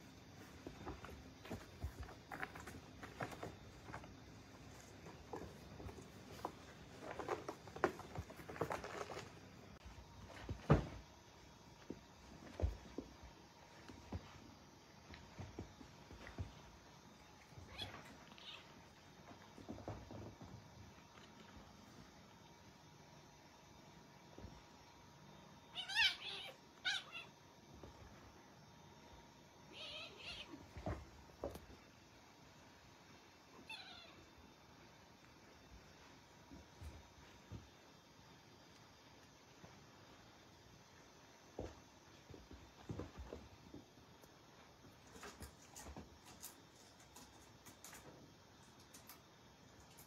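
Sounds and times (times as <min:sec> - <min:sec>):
cats play-fighting: 0:00.0 - 0:50.0
paws scrabbling on cardboard: 0:00.4 - 0:11.0
cats meowing: 0:25.8 - 0:27.3, 0:29.7 - 0:30.7.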